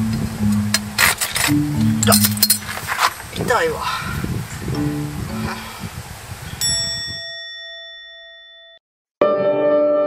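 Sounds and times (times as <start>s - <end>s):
background music with held notes: 0.0s - 2.6s, 4.7s - 5.7s, 9.2s - 10.0s.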